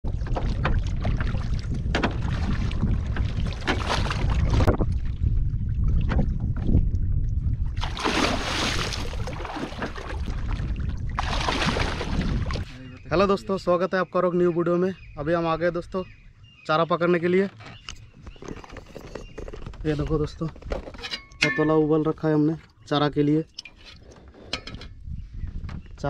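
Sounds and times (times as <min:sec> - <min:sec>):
water slapping against wooden boat: 0:00.0 - 0:07.1, 0:07.7 - 0:12.8
wind buffeting microphone: 0:00.0 - 0:13.7, 0:17.8 - 0:22.2, 0:24.6 - 0:26.0
rushing splashing water: 0:07.8 - 0:12.7.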